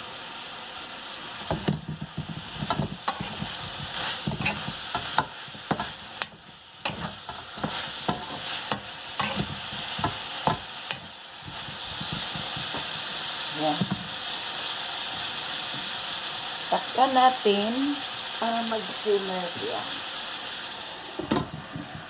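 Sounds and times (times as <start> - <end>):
food sizzling: 0.0 - 22.0
wooden spatula scraping wok: 1.4 - 14.1.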